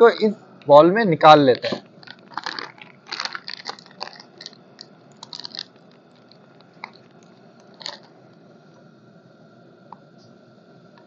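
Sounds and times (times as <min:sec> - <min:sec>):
powder pouring into bowl: 0:02.0 - 0:08.1.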